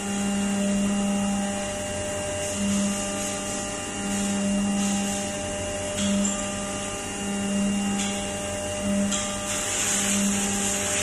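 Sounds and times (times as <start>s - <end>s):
milling machine whine: 0.0s - 11.0s
coolant hiss: 1.0s - 6.8s, 7.7s - 11.0s.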